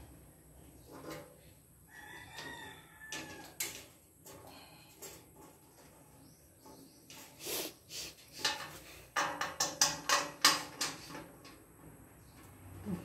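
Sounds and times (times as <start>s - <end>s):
metal rack parts knocking: 8.3s - 12.4s.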